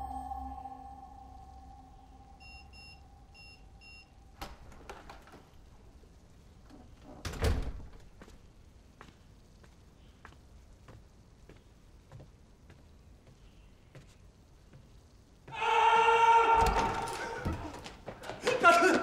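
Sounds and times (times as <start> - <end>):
soundtrack music: 0.0 - 2.7.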